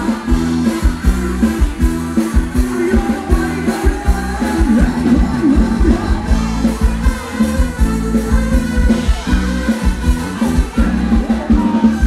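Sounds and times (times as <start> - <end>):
person singing: 0.0 - 8.3
bass line: 0.0 - 12.0
drum beat: 0.0 - 12.0
live band dance music: 0.0 - 12.0.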